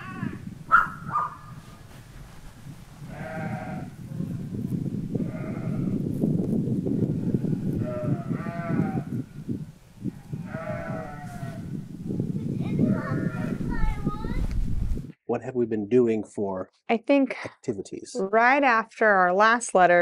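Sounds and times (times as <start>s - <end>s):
low rumbling noise: 0.0s - 15.1s.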